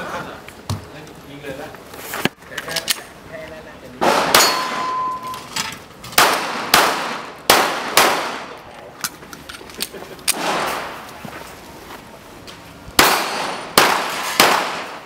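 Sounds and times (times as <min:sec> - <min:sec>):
pistol shots echoing: 0:04.0 - 0:05.1, 0:06.2 - 0:08.6, 0:10.3 - 0:11.0, 0:13.0 - 0:15.0
steel targets clanging: 0:04.0 - 0:05.8.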